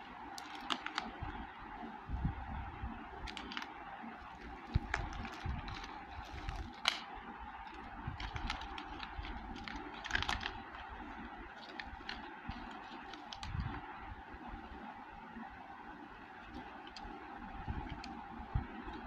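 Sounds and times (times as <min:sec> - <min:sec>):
foil bags crinkling: 0:00.3 - 0:01.4, 0:03.2 - 0:13.9.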